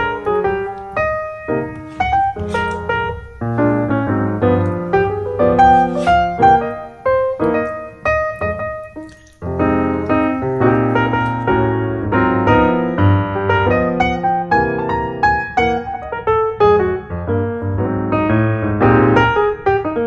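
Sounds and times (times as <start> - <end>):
piano music: 0.0 - 20.0.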